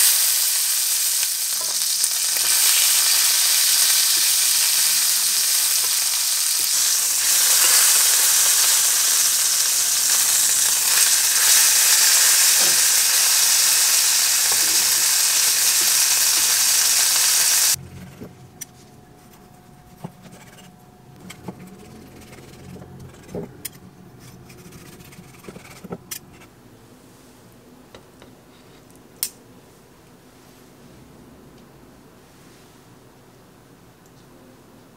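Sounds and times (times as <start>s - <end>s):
meat sizzling in oil: 0.0s - 17.8s.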